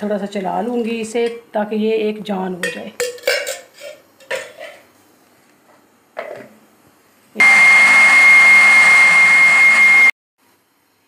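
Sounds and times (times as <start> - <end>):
electric blender whining: 7.4 - 10.1.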